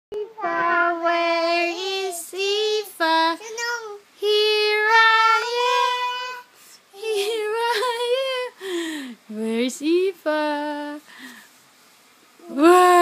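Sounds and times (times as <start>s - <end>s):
child singing: 0.1s - 7.4s.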